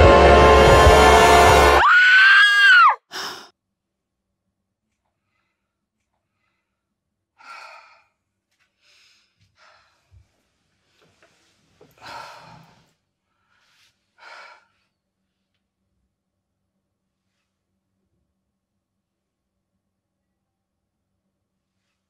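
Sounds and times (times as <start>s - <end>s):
woman breathing heavily and gasping: 3.0s - 3.5s, 7.4s - 10.3s, 11.9s - 15.0s.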